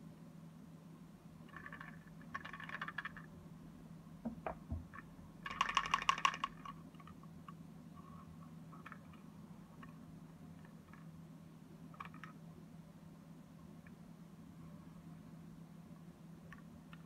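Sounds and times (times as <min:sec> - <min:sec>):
soft knocks: 0:04.2 - 0:04.9.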